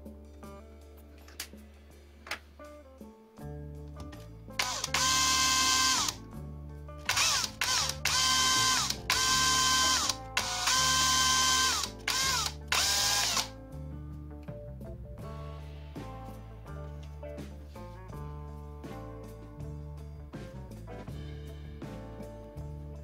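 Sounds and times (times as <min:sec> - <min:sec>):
background music: 0:00.0 - 0:23.0
electric drill motor whining: 0:04.6 - 0:06.2, 0:07.1 - 0:13.5.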